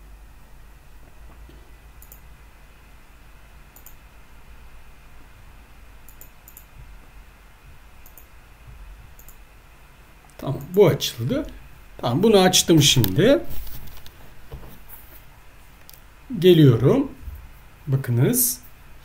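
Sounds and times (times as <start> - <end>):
low steady hum: 0.0 - 19.0
computer mouse clicks: 2.0 - 2.3, 3.7 - 4.0, 6.0 - 6.7, 8.0 - 8.3, 9.2 - 9.4.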